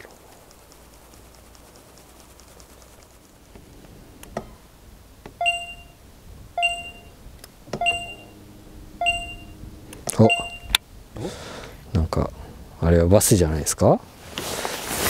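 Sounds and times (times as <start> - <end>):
faint steady hum: 0.0 - 14.7
short electronic beeps: 5.4 - 6.0, 6.6 - 7.2, 7.8 - 8.4, 9.0 - 10.8.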